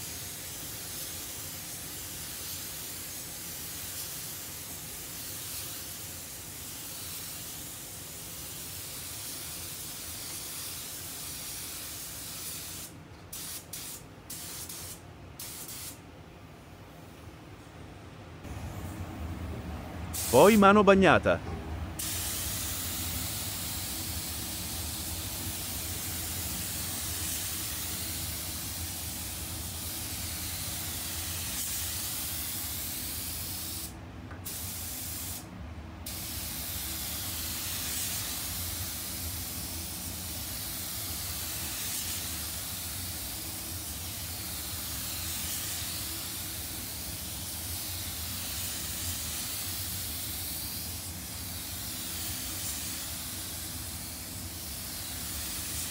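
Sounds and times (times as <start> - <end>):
paint spray gun hissing: 0.0 - 16.0, 22.0 - 33.9, 34.5 - 35.4, 36.1 - 55.9.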